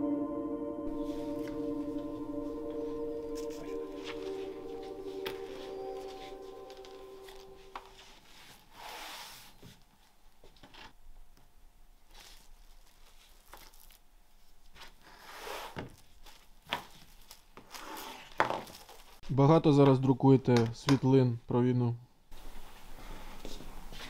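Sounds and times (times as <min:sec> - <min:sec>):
plastic film rustling: 0:12.1 - 0:19.2.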